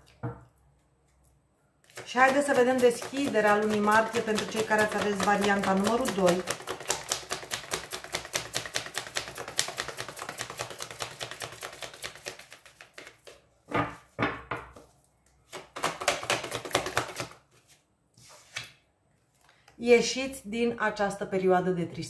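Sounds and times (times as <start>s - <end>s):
cards being shuffled: 1.9s - 13.4s, 14.8s - 19.5s.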